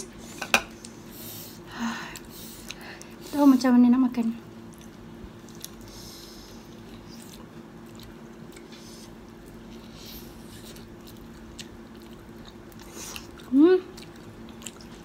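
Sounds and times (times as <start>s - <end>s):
steady low hum: 0.0s - 15.0s
biting and chewing: 4.6s - 15.0s.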